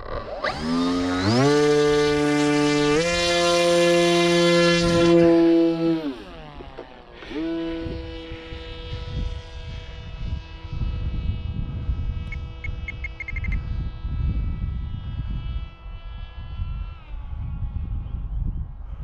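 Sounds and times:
electric motor whine: 0.0s - 19.0s
wind rumbling on microphone: 0.0s - 19.0s
short beeps: 12.3s - 13.6s.

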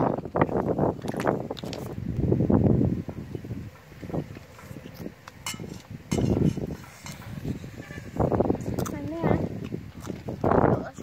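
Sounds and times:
spoons clinking on steel bowls: 5.4s - 7.3s.

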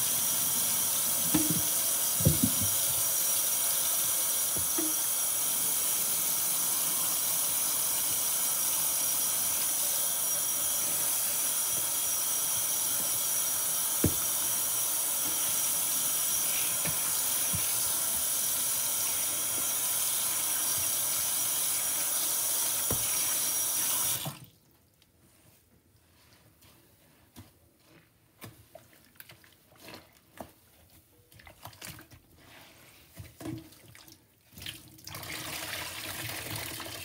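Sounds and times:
foam fizzing in a sink: 0.0s - 24.4s
sponge squelching: 25.3s - 33.4s.

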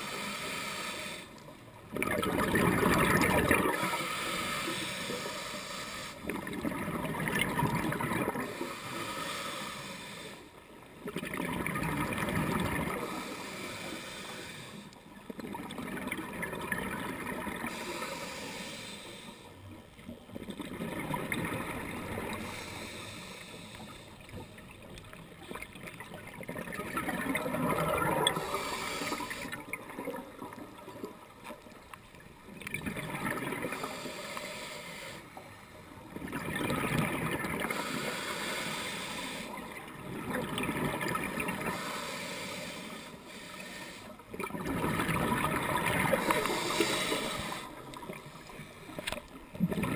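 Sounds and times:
diver breathing through regulator: 0.0s - 1.4s, 3.6s - 6.5s, 8.3s - 10.6s, 12.9s - 15.0s, 17.6s - 19.6s, 22.0s - 24.7s, 28.0s - 29.7s, 33.6s - 35.9s, 37.6s - 39.7s, 41.4s - 44.3s, 45.8s - 49.2s
air bubbles gurgling underwater: 1.9s - 4.0s, 6.2s - 8.6s, 11.0s - 13.2s, 15.2s - 17.8s, 20.2s - 22.6s, 24.4s - 33.9s, 36.0s - 37.9s, 39.6s - 41.8s, 44.3s - 49.9s.

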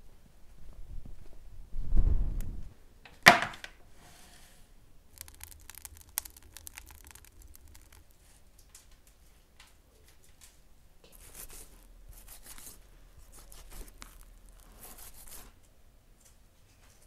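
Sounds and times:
wood fire crackling: 5.0s - 15.8s.

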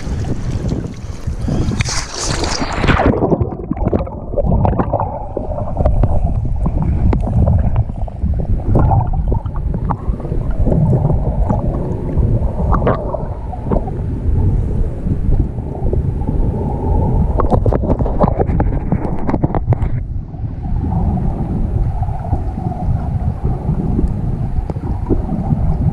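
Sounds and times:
water splashing: 0.0s - 14.0s
underwater rumble of moving water: 0.0s - 25.9s
underwater bubbling and ticks: 2.6s - 25.9s.

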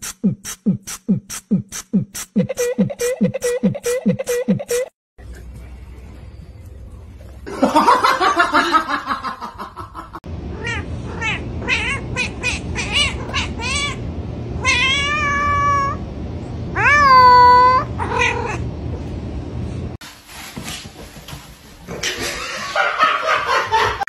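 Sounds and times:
cat meowing: 14.6s - 16.0s, 16.8s - 18.6s.

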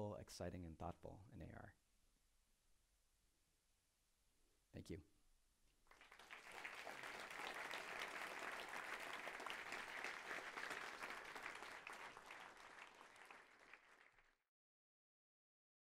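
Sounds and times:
audience applauding: 5.9s - 14.4s.

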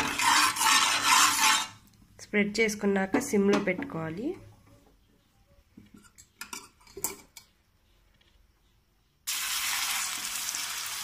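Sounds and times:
steel spatula scraping pan: 0.0s - 1.8s
omelet sizzling in oil: 9.3s - 11.0s.

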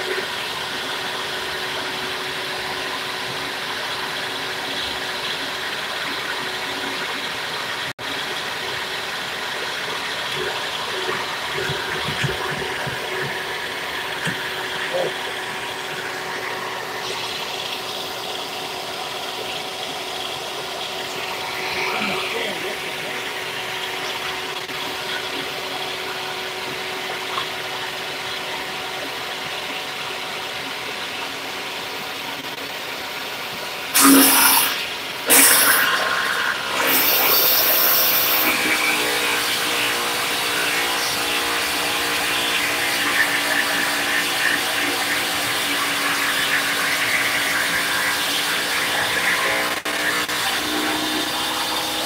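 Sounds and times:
table saw cutting metal: 8.1s - 18.4s, 33.9s - 52.0s.

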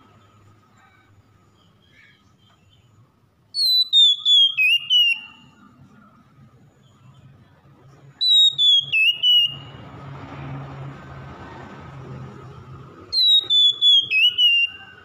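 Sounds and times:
bird singing whistled phrases: 3.6s - 5.6s, 8.2s - 9.8s, 13.1s - 15.0s.

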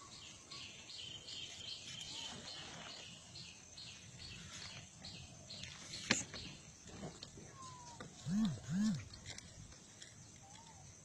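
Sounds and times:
bird chirping: 0.0s - 6.8s.

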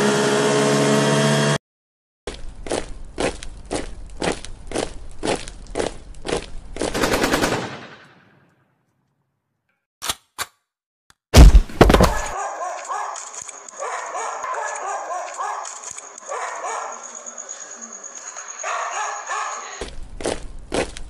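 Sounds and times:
sharp gunshots: 7.0s - 8.4s
dog whining and barking: 12.1s - 13.2s, 13.8s - 18.0s, 18.6s - 19.8s
crickets chirring: 13.2s - 19.8s.

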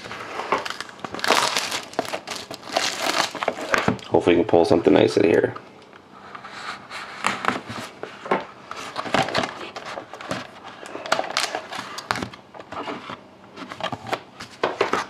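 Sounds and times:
packaging crinkling: 0.0s - 4.1s, 8.8s - 12.3s.

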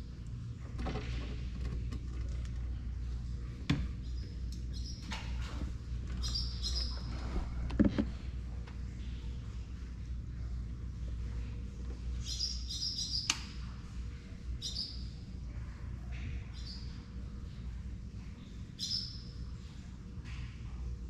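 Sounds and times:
steady low rumble: 0.0s - 12.9s, 13.5s - 21.0s
small bird chirping: 4.0s - 5.1s, 6.2s - 7.1s, 12.2s - 13.4s, 14.6s - 15.2s, 16.5s - 17.0s, 18.8s - 19.4s.

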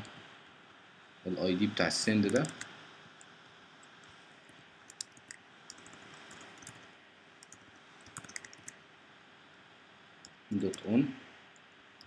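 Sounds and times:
computer keyboard typing: 2.2s - 2.7s, 4.9s - 8.8s.

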